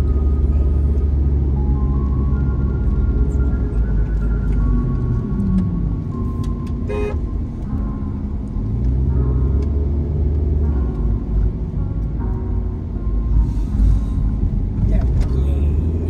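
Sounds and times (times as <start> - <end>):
car engine and tyre rumble: 0.0 - 16.0
car horn toot: 6.9 - 7.2.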